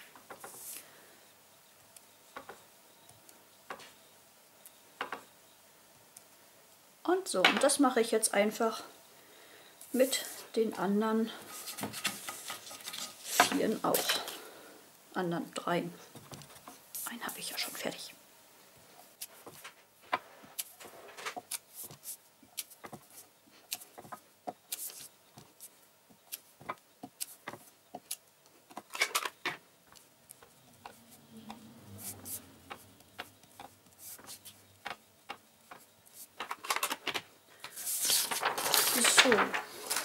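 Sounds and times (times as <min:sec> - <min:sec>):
paper being handled: 0:11.4 - 0:14.2, 0:20.6 - 0:28.1, 0:31.9 - 0:40.0.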